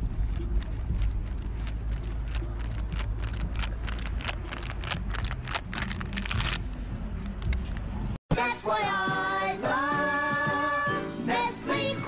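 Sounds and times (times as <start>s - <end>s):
sharp clicks and rattles: 0.0s - 7.9s.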